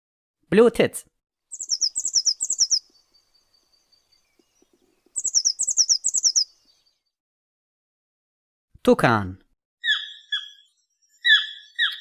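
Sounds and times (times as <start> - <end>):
blue tit singing: 1.5 - 7.0, 9.8 - 12.0.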